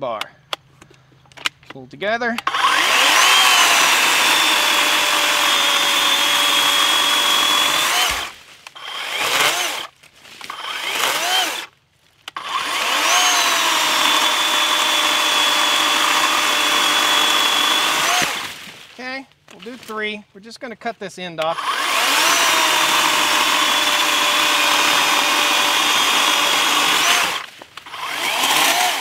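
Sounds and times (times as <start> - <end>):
chainsaw cutting log: 2.4 - 11.7, 12.3 - 18.8, 21.4 - 29.0
electric chainsaw motor whining: 2.4 - 11.7, 12.3 - 18.6, 21.5 - 29.0.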